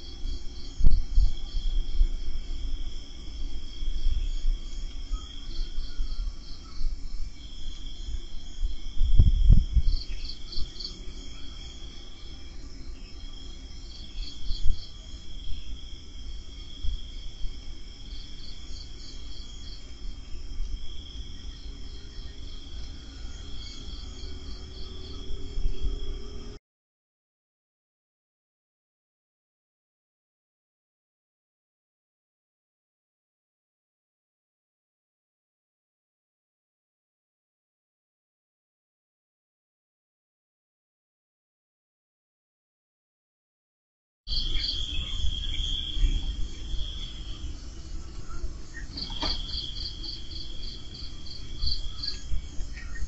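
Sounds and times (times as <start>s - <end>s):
crickets trilling: 0.0s - 26.6s, 44.3s - 53.0s
insect pulsing chirps: 0.0s - 26.6s, 44.3s - 53.0s
low rumbles and thumps: 8.8s - 10.0s.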